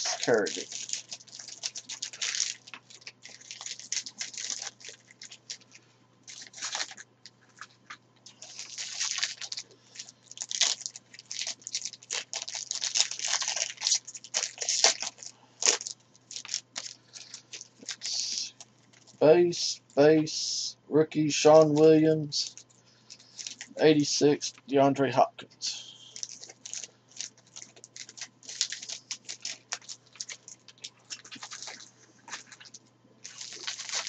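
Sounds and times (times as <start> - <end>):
cards being handled: 0.0 - 9.6
wrapper tearing and crinkling: 0.0 - 19.2, 22.4 - 23.7, 26.1 - 34.0.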